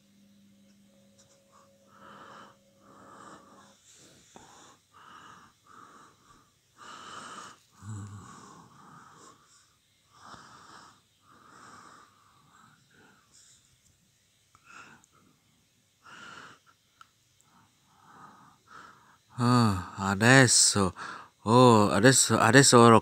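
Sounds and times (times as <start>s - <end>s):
person breathing close to microphone: 1.5s - 13.8s, 14.5s - 16.8s, 17.4s - 20.0s, 20.9s - 21.4s.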